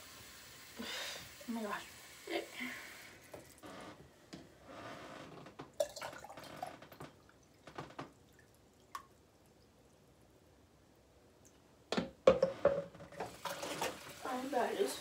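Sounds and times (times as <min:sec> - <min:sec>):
water dripping in sink: 0:05.6 - 0:10.0.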